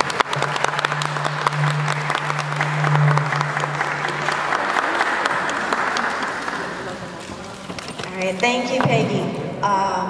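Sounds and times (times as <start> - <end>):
low steady hum: 0.0 - 7.0
audience applauding: 0.0 - 8.1.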